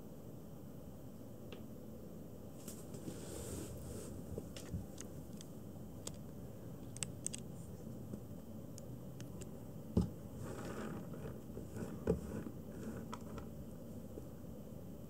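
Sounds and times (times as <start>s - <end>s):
room noise: 0.0s - 15.0s
kitten paws clicking on plastic: 4.4s - 7.5s.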